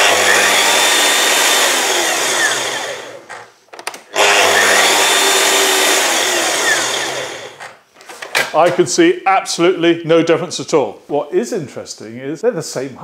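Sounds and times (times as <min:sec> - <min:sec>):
mitre saw motors winding down: 0:00.0 - 0:03.5, 0:04.1 - 0:07.7.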